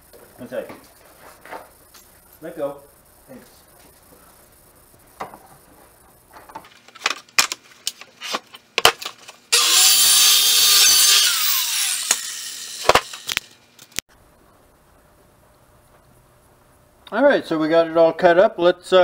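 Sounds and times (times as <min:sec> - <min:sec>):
electric saw cutting plywood: 0:09.5 - 0:13.5.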